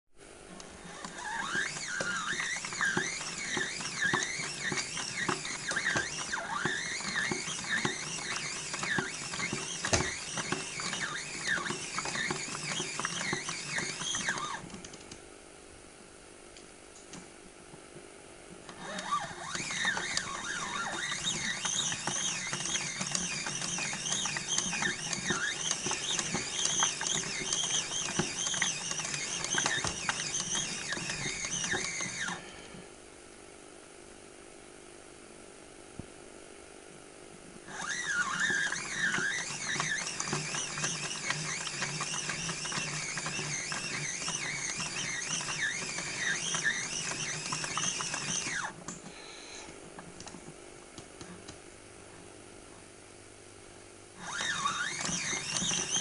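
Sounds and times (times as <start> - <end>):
suspension squeaking: 0.9 - 14.6, 18.8 - 32.4, 37.7 - 48.7, 54.2 - 56.0
toy washing machine drum turning: 1.0 - 14.6, 18.9 - 32.4, 37.7 - 48.7, 54.2 - 56.0.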